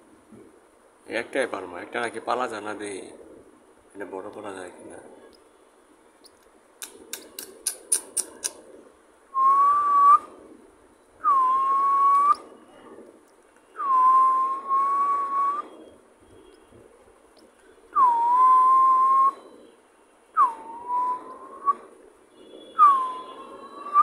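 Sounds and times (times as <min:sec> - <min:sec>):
sharp clicks: 0:06.2 - 0:08.6
long whistled tones: 0:09.3 - 0:10.4, 0:11.2 - 0:12.5, 0:13.7 - 0:16.7, 0:17.9 - 0:24.0.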